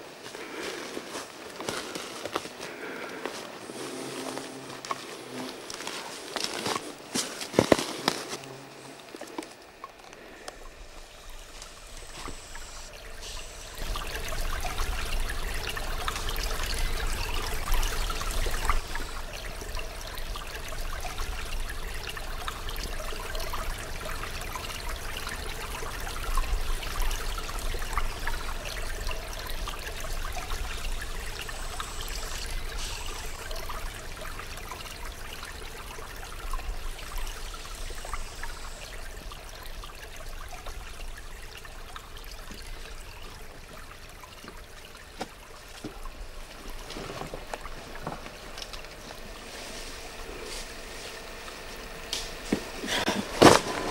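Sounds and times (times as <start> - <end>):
stream splashing over rocks: 3.3 - 49.4, 50.0 - 53.9.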